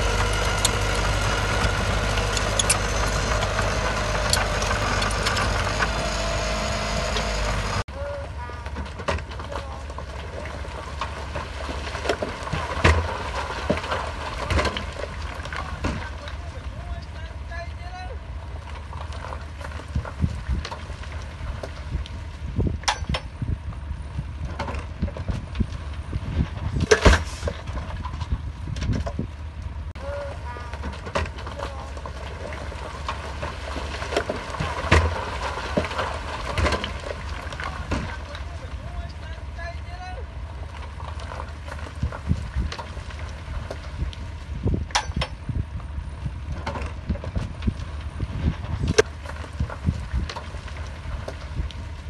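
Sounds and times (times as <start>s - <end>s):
diesel engine rumbling: 0.0s - 52.0s
sharp metal knocks and clanks: 22.8s - 23.3s, 44.9s - 45.4s.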